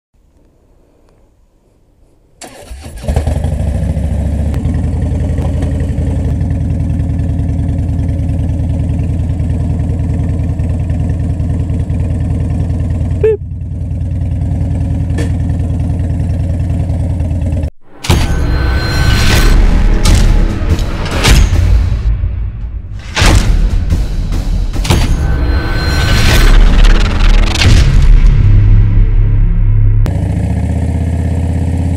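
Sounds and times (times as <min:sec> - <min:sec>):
motorcycle engine starting and idling: 0:02.4 - 0:17.7
loud intro music: 0:17.8 - 0:30.1.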